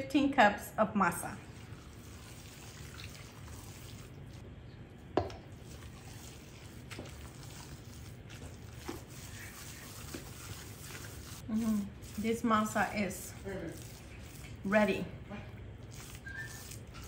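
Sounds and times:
spoon squishing dough: 1.5 - 17.0.

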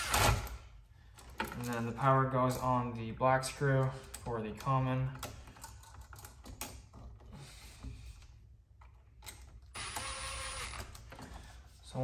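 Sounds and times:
cordless drill whirring: 9.7 - 11.0.

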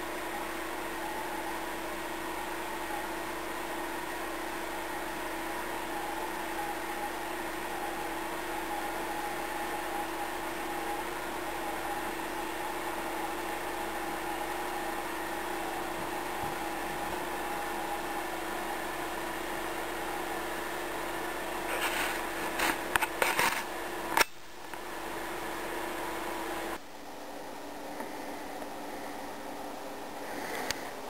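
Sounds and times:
mechanical hum with held tones: 0.0 - 31.0.

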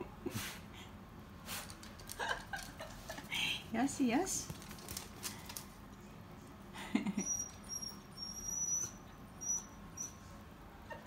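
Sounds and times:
dog whining: 7.2 - 11.0.

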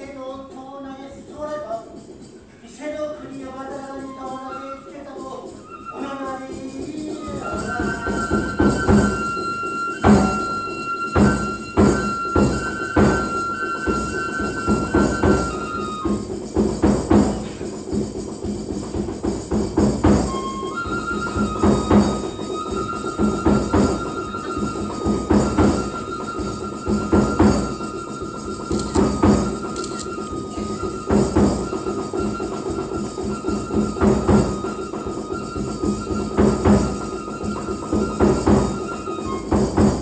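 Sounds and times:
bamboo flute high notes: 3.8 - 16.6, 20.2 - 40.0
drum strikes: 10.0 - 22.4, 23.2 - 37.3.

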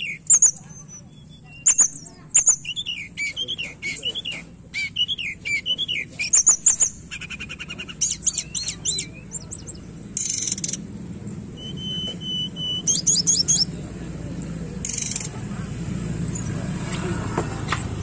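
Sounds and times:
bird singing chirps and whistles: 0.0 - 10.8, 11.5 - 13.7.

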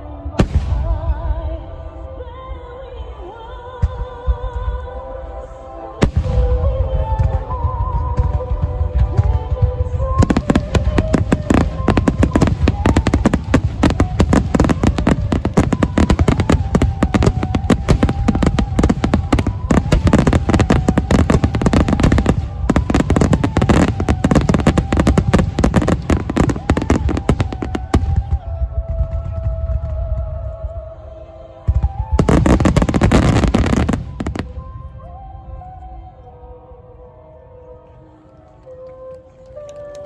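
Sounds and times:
fireworks bangs and crackles: 0.3 - 1.4, 6.0 - 30.8, 31.7 - 34.8.

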